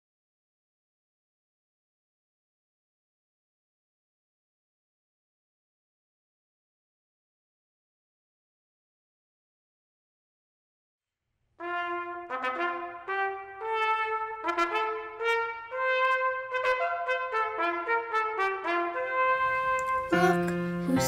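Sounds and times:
solo trumpet slow melody: 0:11.6 - 0:21.0
music with low accompaniment: 0:19.4 - 0:21.0.

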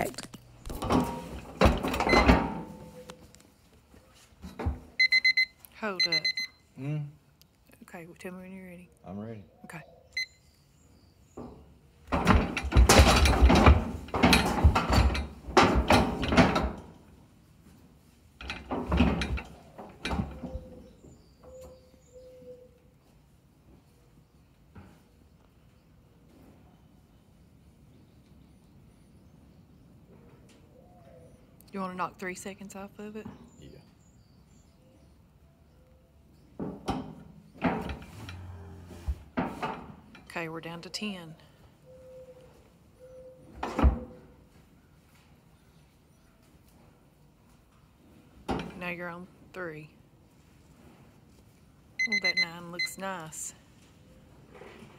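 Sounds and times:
metal cattle chute rattling: 0:12.1 - 0:17.0, 0:18.4 - 0:20.6.

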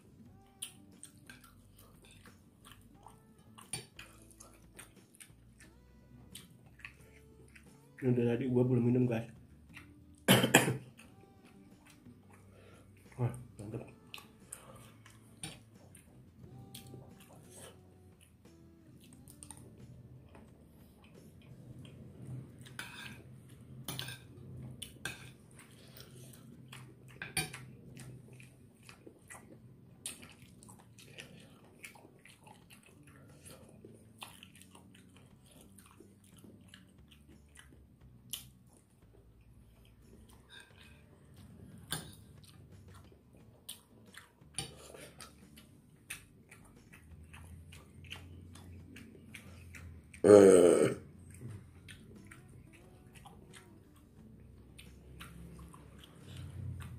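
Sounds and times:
chewing: 0:00.0 - 0:56.9
metal spoon scraping a plate: 0:22.7 - 0:23.3
loud burp: 0:50.2 - 0:51.0.

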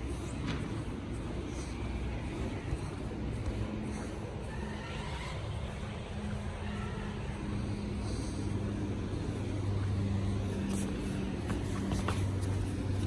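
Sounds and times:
street noise: 0:00.0 - 0:13.0
vehicle engine hum: 0:00.0 - 0:13.0.

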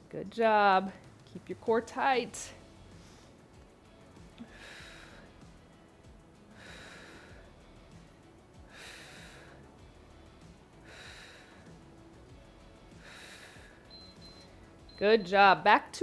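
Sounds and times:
person breathing: 0:02.9 - 0:03.4, 0:04.4 - 0:05.6, 0:06.4 - 0:08.1, 0:08.7 - 0:11.9, 0:12.5 - 0:13.9.

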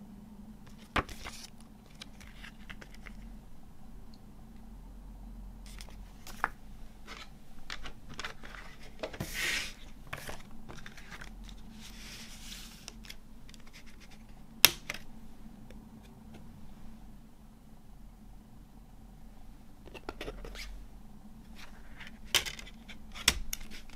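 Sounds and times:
paper booklet rustling: 0:00.7 - 0:03.3, 0:05.7 - 0:14.4.

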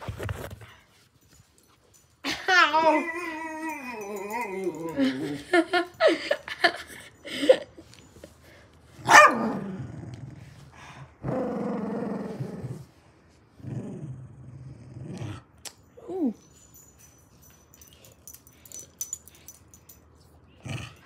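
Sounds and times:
dog barking: 0:09.1 - 0:09.6
dog growling: 0:11.2 - 0:12.9.

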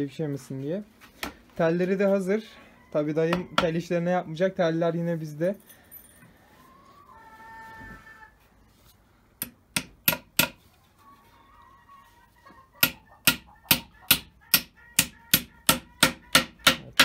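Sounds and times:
hammer striking nail into wood: 0:09.4 - 0:10.6, 0:12.8 - 0:17.0.

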